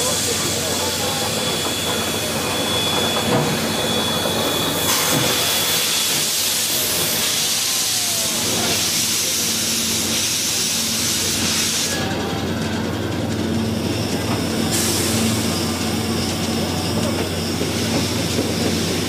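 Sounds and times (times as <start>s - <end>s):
steam hissing: 0.0s - 12.4s, 13.5s - 19.0s.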